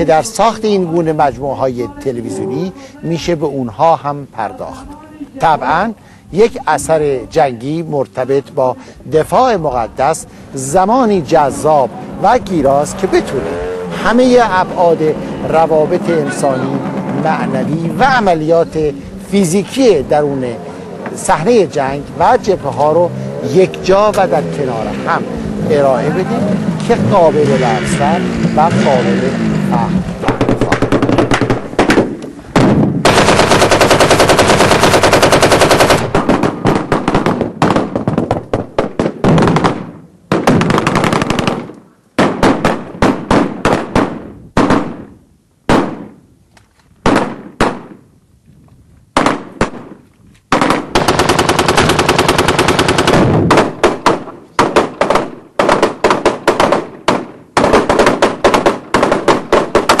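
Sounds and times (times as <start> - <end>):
machine-gun fire: 30.2 - 45.1, 45.7 - 46.2, 47.0 - 48.0, 49.2 - 60.0.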